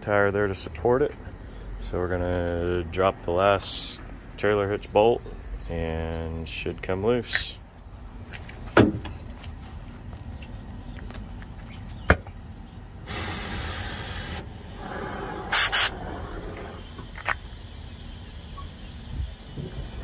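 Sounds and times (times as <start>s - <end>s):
gas hissing: 13.0s - 20.0s
torch loud pops: 13.1s - 17.4s.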